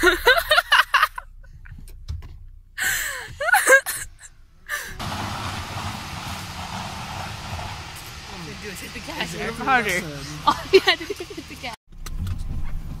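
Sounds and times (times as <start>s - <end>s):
low rumble inside car: 0.0s - 13.0s
outdoor rushing noise: 5.0s - 11.8s.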